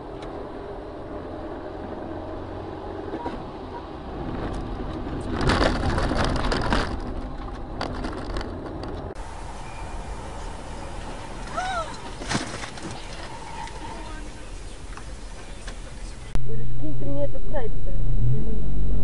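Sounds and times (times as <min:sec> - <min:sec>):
low vehicle rumble: 0:00.0 - 0:19.0
car crash crunching: 0:04.3 - 0:16.3.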